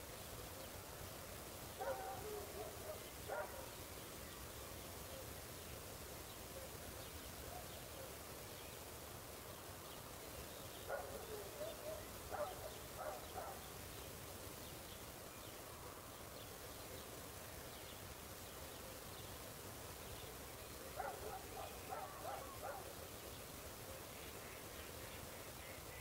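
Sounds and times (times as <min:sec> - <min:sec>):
faint hiss: 0:00.0 - 0:26.0
distant dog barking: 0:01.8 - 0:03.7, 0:10.9 - 0:13.7, 0:20.9 - 0:23.0.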